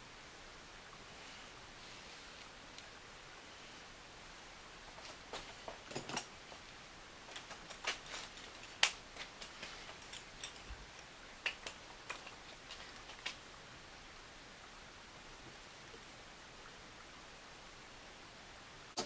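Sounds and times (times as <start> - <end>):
wooden pieces clicking and tapping: 7.3 - 13.4.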